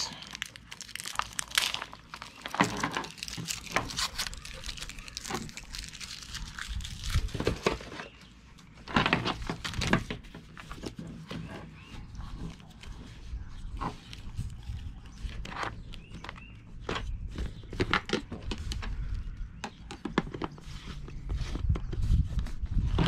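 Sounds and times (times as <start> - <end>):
plastic wrap crinkling: 0.0 - 8.0
paper and cardboard rustling: 0.1 - 19.1.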